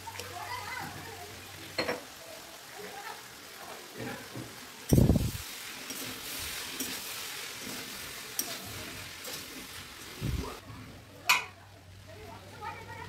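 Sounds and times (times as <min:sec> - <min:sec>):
fried rice sizzling: 0:00.0 - 0:13.0
spatula scraping pan: 0:05.5 - 0:09.9.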